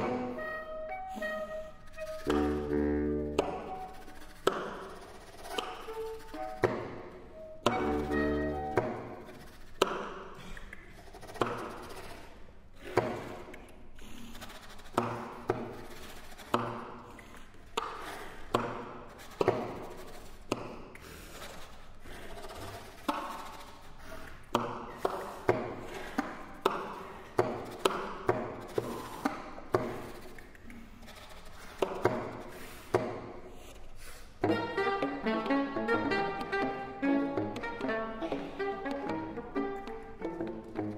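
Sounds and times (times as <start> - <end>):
saxophone quartet playing: 0.0 - 4.2, 7.4 - 9.1, 34.4 - 40.9.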